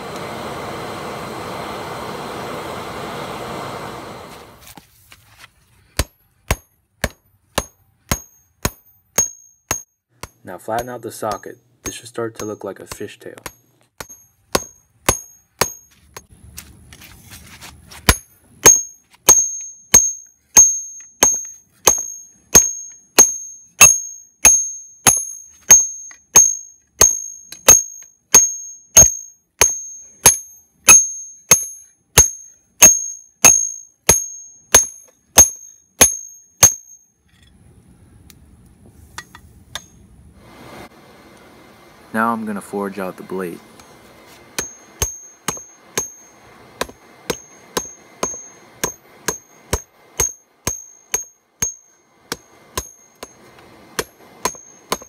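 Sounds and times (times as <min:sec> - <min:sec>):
hammer striking hot steel on anvil: 0:06.0 - 0:16.3, 0:18.0 - 0:37.5, 0:39.2 - 0:40.0, 0:43.8 - 0:55.0.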